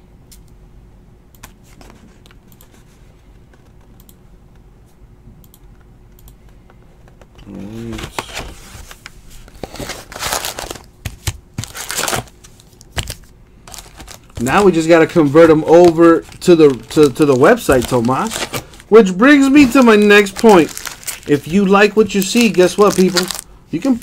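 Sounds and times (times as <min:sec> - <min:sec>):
keyboard typing clicks: 0:03.6 - 0:04.2, 0:05.4 - 0:07.3
foil packs crinkling and tearing: 0:09.5 - 0:24.0.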